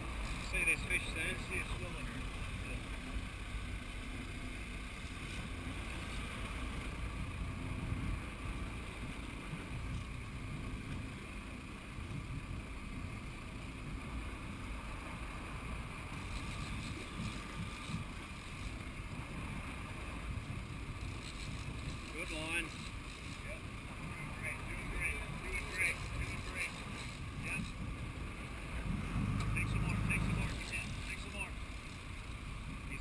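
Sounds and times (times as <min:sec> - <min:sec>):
boat engine rumble: 0:00.0 - 0:33.0
water washing along hull: 0:00.0 - 0:33.0
wind on microphone: 0:23.9 - 0:31.1.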